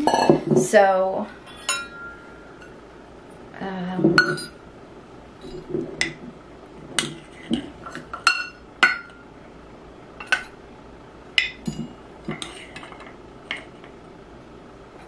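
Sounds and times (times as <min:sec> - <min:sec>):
metal spoon clinking on glass: 0:01.6 - 0:02.2.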